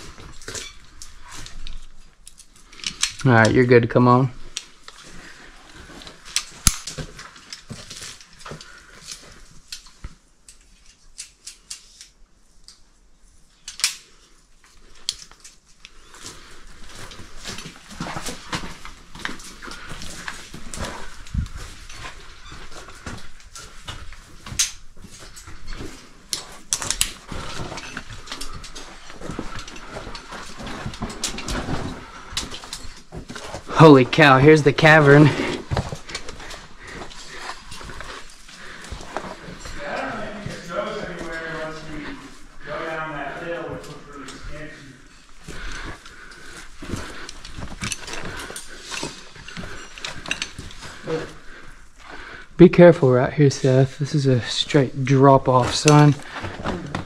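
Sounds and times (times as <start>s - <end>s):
carabiners clinking: 15.0s - 33.8s, 45.1s - 51.2s.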